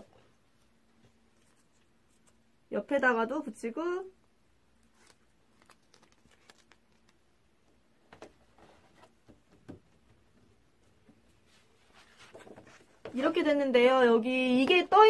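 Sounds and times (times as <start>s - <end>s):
paper rustling: 4.8s - 7.2s, 11.4s - 13.2s.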